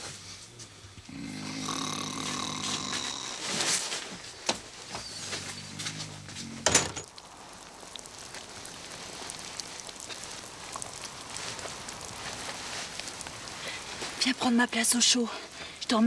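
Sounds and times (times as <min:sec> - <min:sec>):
person snoring: 0:01.1 - 0:03.8.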